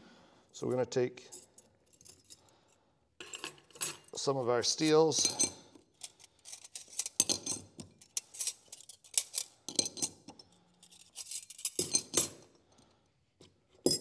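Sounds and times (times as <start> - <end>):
steel plates clinking and scraping: 3.2 - 12.4.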